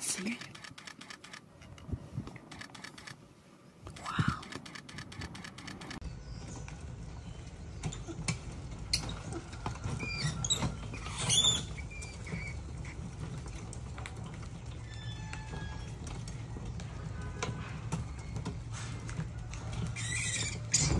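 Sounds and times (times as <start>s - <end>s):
rats squeaking: 7.8s - 13.7s, 17.9s - 20.9s.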